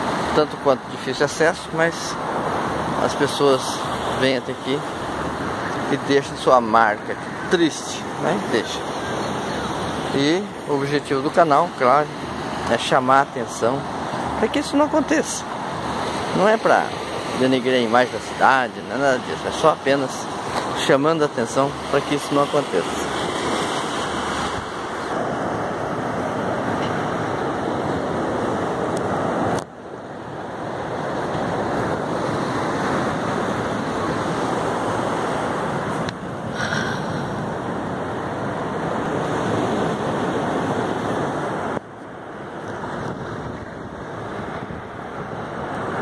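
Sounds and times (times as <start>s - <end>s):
surf washing over rocks: 0.0s - 46.0s
wind on microphone: 22.8s - 46.0s.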